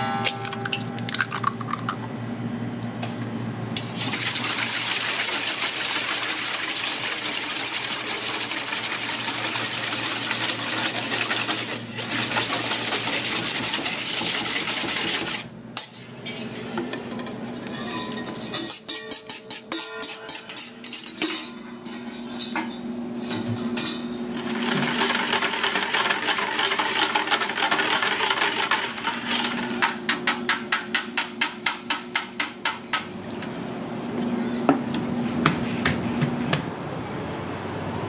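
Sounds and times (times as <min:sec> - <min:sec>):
whisk knocking against bucket: 0:05.3 - 0:15.4.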